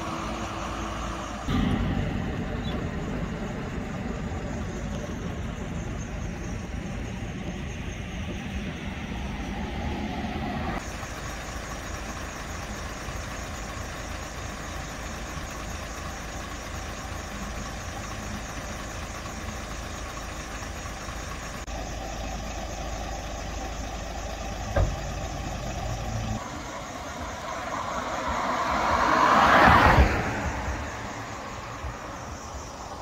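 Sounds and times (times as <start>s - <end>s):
diesel truck engine idling: 0.0s - 29.1s, 30.0s - 33.0s
truck driving off: 0.0s - 33.0s
sharp thump: 1.5s - 3.7s, 24.7s - 25.1s.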